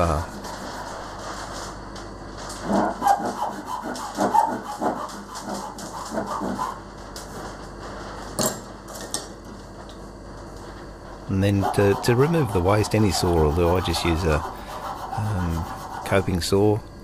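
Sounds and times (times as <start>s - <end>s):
hand saw cutting timber: 2.6s - 6.8s, 11.4s - 16.4s.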